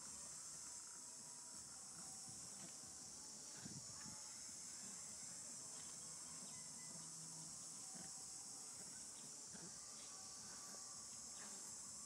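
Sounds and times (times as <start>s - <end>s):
high-pitched insect chorus: 0.0s - 12.0s.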